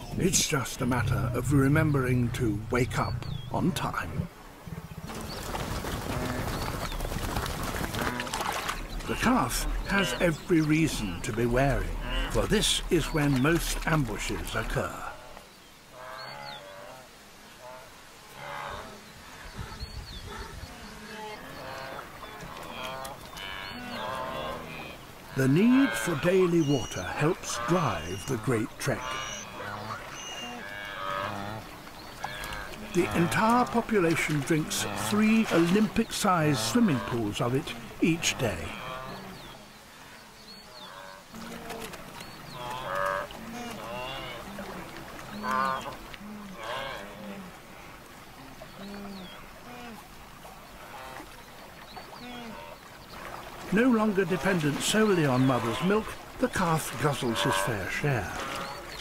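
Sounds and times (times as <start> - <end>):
animals grunting low: 7.9 - 15.2
wildebeest nasal grunting calls: 8.0 - 15.3, 19.6 - 39.6, 42.5 - 47.6, 52.1 - 59.0.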